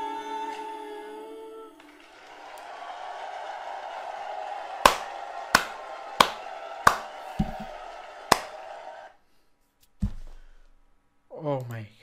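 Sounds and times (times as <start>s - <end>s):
loud hand smacks: 4.9s - 8.5s.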